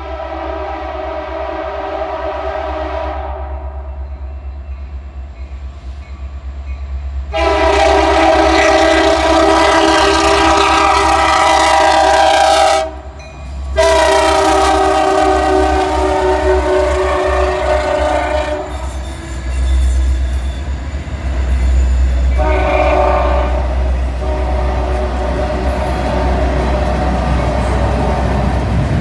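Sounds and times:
locomotive air horn blasts: 0.0 - 3.8, 7.3 - 13.1, 13.8 - 19.0, 22.3 - 27.6.

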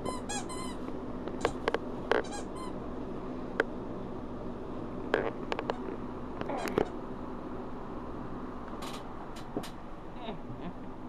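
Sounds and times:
squeaky toy squeaking: 0.0 - 0.8, 2.2 - 2.7.

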